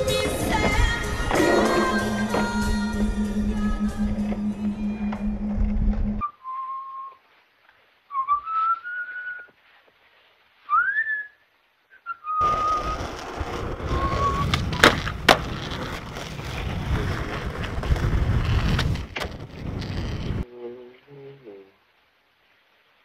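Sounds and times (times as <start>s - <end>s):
skateboard wheels on pavement: 0.0s - 6.3s, 12.3s - 20.4s
person whistling: 6.2s - 7.2s, 8.1s - 9.6s, 10.7s - 13.0s
skateboard clacks: 12.4s - 20.4s.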